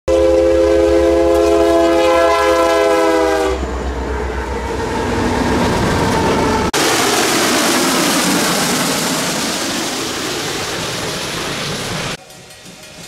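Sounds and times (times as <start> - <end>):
locomotive air horn chord: 0.1 - 4.8
train running and diesel rumble: 0.1 - 13.0.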